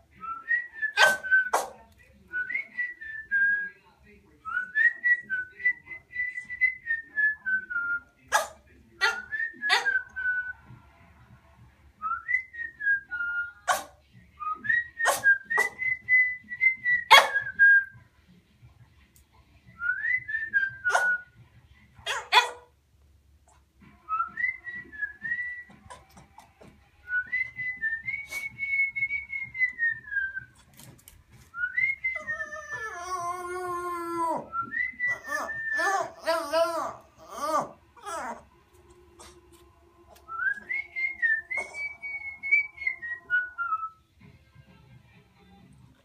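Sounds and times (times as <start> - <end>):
person whistling a tune: 27.1 - 30.5, 40.3 - 44.0
small dog howling: 32.2 - 34.5, 35.1 - 38.5.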